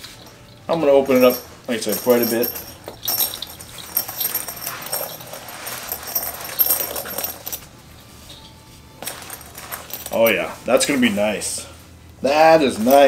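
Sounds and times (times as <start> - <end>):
buckle and zipper clinks: 1.0 - 7.7, 9.0 - 10.4
nylon bag rustling: 1.2 - 7.6.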